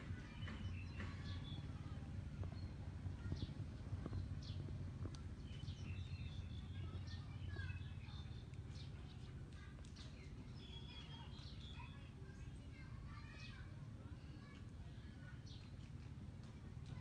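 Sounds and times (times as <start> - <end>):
low background hum: 0.0 - 17.0
small birds chirping: 0.0 - 17.0.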